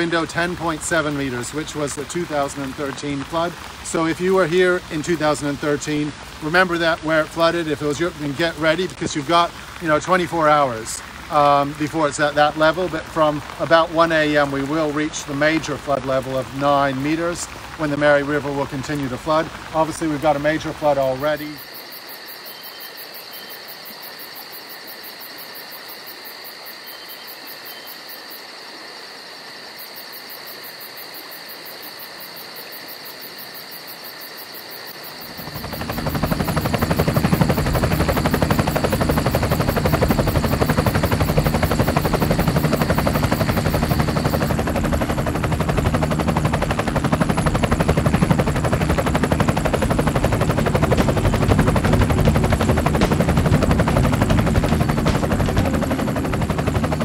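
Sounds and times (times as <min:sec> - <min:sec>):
steady hiss: 0:00.0 - 0:22.1
thin high whine: 0:35.2 - 0:48.0, 0:48.7 - 0:57.0
aircraft rotor whirr: 0:35.2 - 0:57.0.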